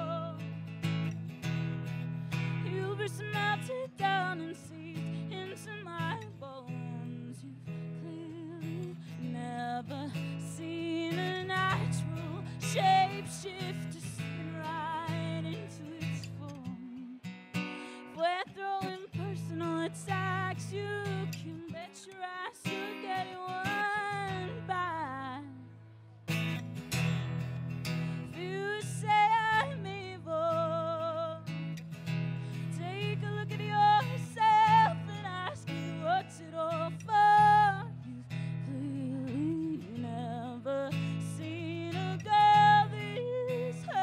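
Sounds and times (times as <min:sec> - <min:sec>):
strummed acoustic guitar: 0:00.0 - 0:44.0
person singing: 0:18.1 - 0:25.6.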